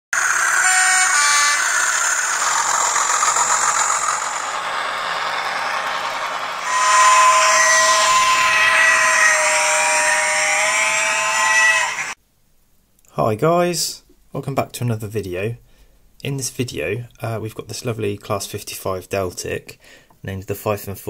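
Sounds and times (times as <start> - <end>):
model train motor whine: 0.2 - 12.2.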